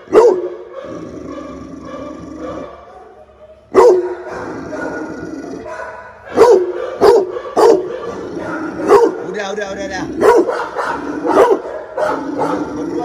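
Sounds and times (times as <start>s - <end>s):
large dog barking: 0.0s - 13.0s.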